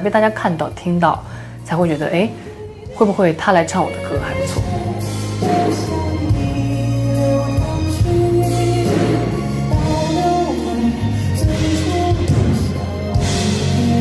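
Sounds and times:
man singing slow ballad: 0:04.2 - 0:14.0
band accompaniment: 0:04.6 - 0:14.0.

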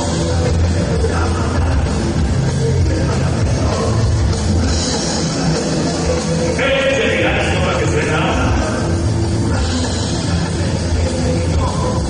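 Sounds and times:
loud rock music: 0:00.0 - 0:12.0.

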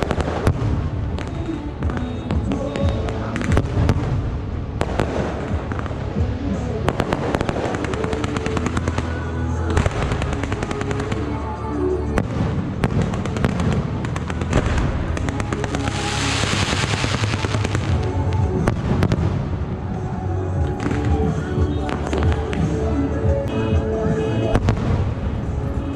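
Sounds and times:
firework bangs: 0:00.0 - 0:11.4, 0:12.2 - 0:19.8, 0:24.1 - 0:25.9
music: 0:00.0 - 0:25.9
firework hissing: 0:12.4 - 0:19.7.

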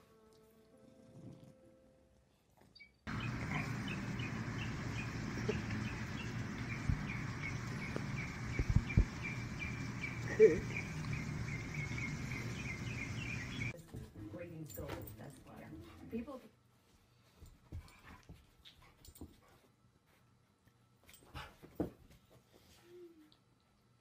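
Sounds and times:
low thumps: 0:03.2 - 0:10.2.

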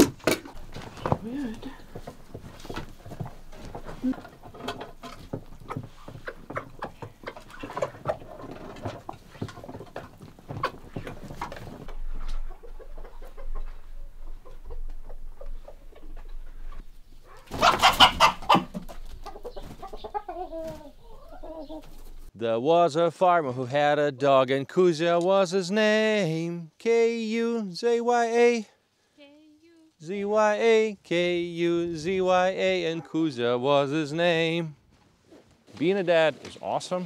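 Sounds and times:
hens clucking: 0:00.0 - 0:22.3
loud chicken call: 0:17.3 - 0:18.8.

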